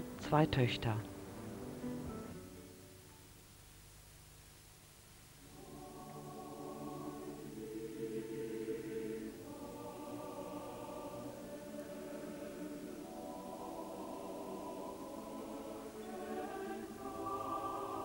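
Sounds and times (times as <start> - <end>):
choir singing slow held chords: 5.4 - 18.0.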